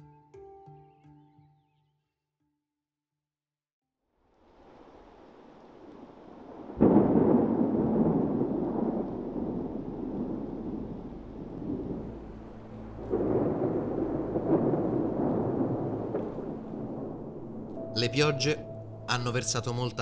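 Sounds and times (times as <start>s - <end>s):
thunder clap rumbling: 5.0s - 18.4s.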